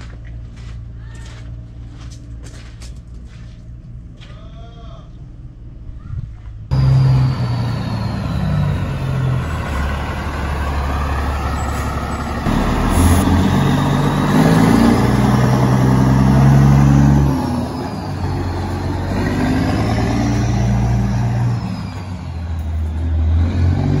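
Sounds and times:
truck diesel engine accelerating: 6.7 - 24.0.

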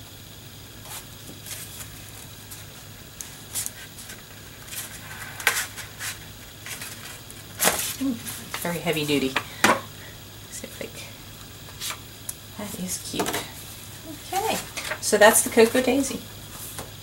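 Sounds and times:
paper pages rustling: 3.5 - 8.4.

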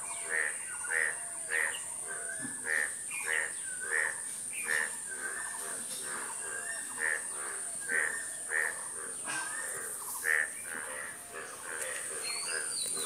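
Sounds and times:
steady high-pitched hiss: 0.0 - 13.0.

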